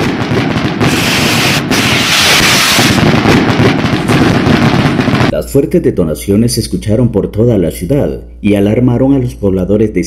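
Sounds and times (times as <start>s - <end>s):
fireworks crackling and banging: 0.0s - 5.4s.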